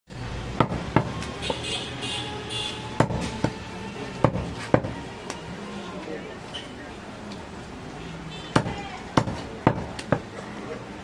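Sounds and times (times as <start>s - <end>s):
cleaver chopping meat on wood: 0.6s - 1.6s, 3.0s - 3.6s, 4.2s - 5.0s, 8.5s - 10.3s
music: 0.7s - 5.7s.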